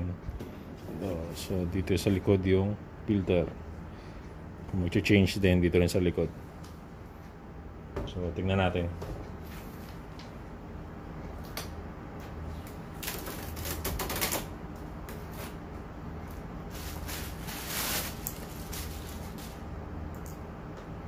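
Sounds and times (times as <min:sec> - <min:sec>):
rustling bursts: 0:16.7 - 0:19.6.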